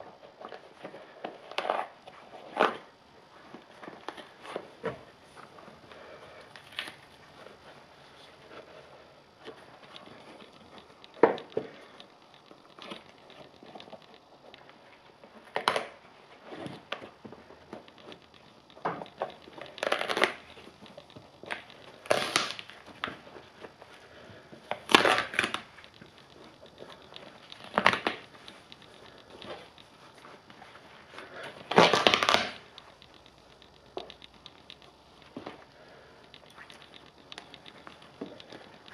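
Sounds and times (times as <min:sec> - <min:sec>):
sneaker tearing and crunching: 0:22.0 - 0:22.7, 0:31.6 - 0:32.6.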